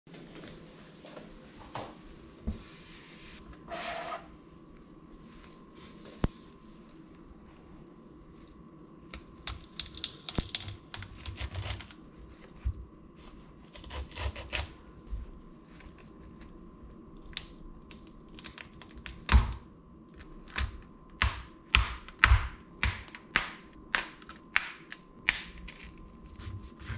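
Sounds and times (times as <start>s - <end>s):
crunching and tearing of cauliflower: 9.2s - 12.6s, 15.6s - 19.3s, 24.2s - 26.9s.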